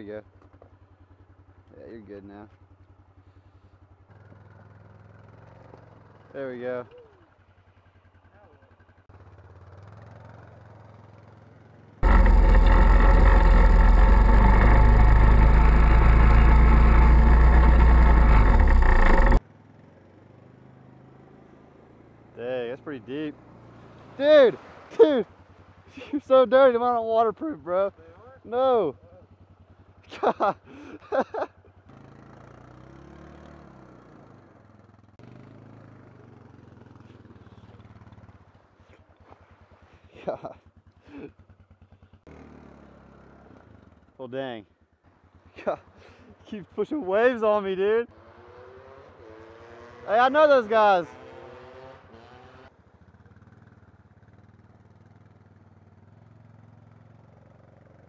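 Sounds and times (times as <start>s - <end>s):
atv engine running: 0.1s - 58.0s
water splashing: 23.8s - 26.0s.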